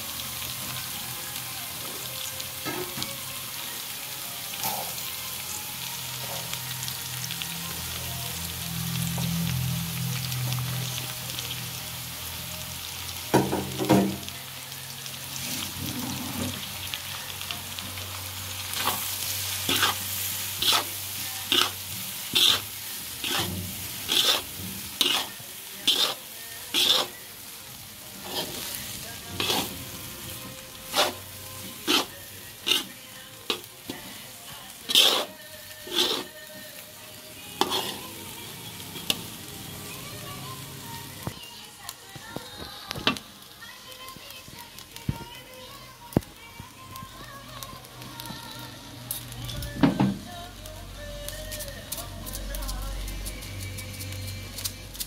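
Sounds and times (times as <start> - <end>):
rice sizzling: 0.0 - 55.0
metal spatula scraping pan: 19.7 - 27.2, 28.2 - 34.0, 34.9 - 36.4, 37.6 - 38.1.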